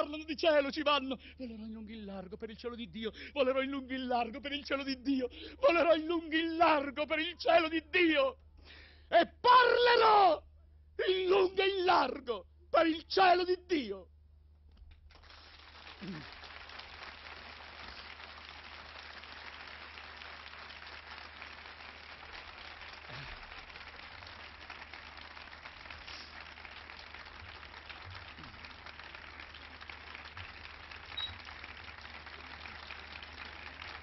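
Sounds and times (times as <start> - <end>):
audience applauding: 15.1 - 34.0.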